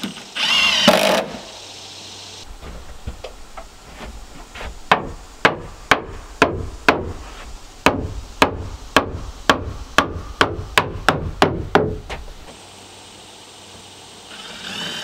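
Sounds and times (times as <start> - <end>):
hammer striking wooden frame: 4.9 - 7.2, 7.8 - 12.3.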